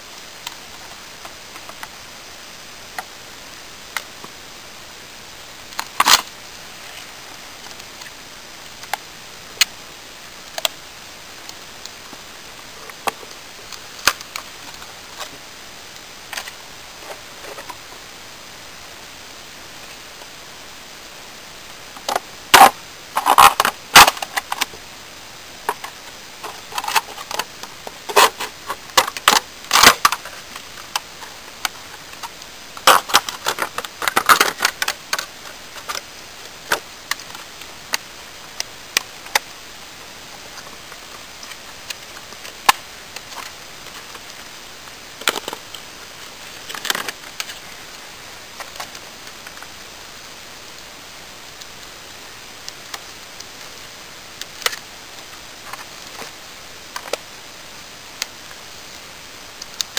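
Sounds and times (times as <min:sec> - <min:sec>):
plastic sheet crinkling: 0:22.0 - 0:24.8, 0:25.6 - 0:37.7.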